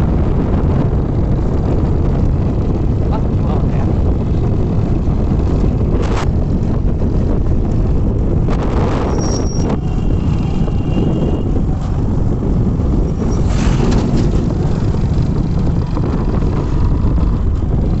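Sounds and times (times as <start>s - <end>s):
wind rumbling on microphone: 0.0s - 18.0s
motorcycle engine running: 13.9s - 18.0s.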